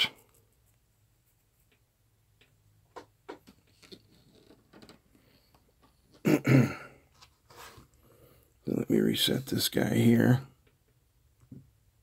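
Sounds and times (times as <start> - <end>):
rustling handling noise: 7.0 - 8.0.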